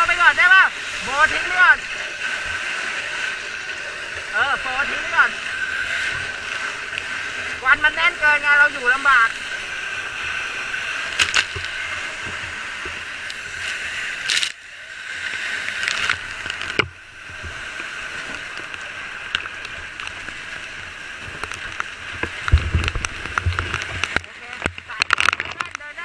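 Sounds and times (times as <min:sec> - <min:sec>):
fire crackling: 0:00.0 - 0:26.0
hose water spraying: 0:00.0 - 0:26.0.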